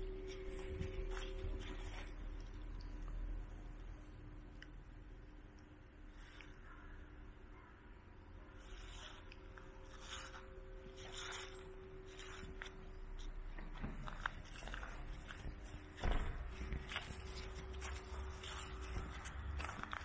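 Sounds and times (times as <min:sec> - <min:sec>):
footsteps walking: 0:00.0 - 0:03.2, 0:08.6 - 0:20.0
faint steady hum: 0:00.0 - 0:20.0.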